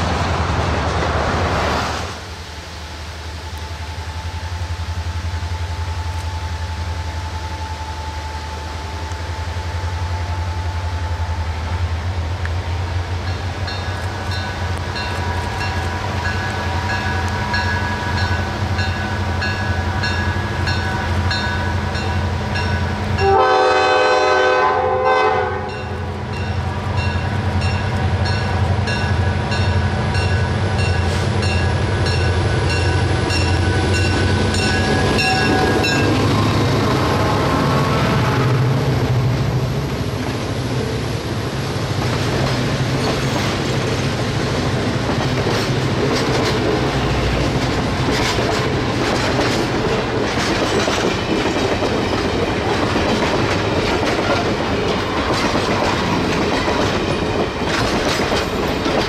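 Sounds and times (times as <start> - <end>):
locomotive bell ringing: 13.2 - 23.6, 25.6 - 36.5
loud train horn blast: 22.5 - 26.9
locomotive engine running: 26.0 - 59.0.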